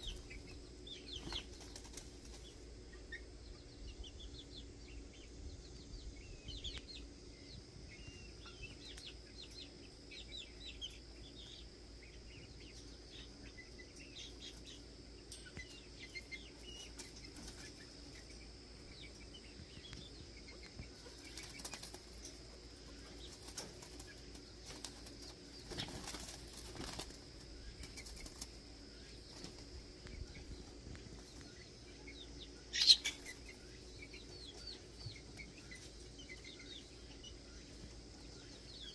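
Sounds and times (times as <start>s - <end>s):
chickens scuffling: 0.0s - 3.3s, 12.5s - 36.7s
wing flapping: 21.2s - 22.2s, 23.2s - 28.6s.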